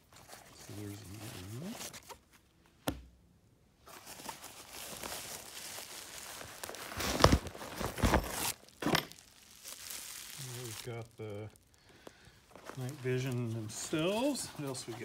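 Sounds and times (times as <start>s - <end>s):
bubble wrap crinkling: 0.0s - 2.5s, 3.8s - 15.0s
fabric bag rustling: 3.8s - 11.7s, 12.3s - 15.0s.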